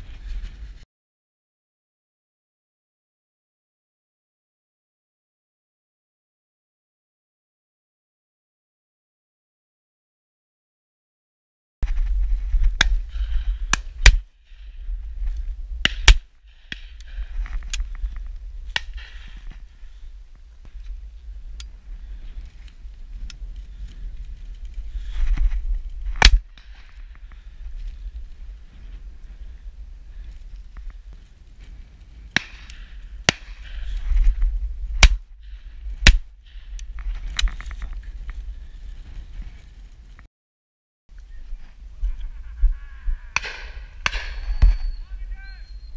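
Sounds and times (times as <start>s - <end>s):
wind on microphone: 11.8s - 40.1s, 41.2s - 45.9s
loud shotgun shots: 43.4s - 45.0s.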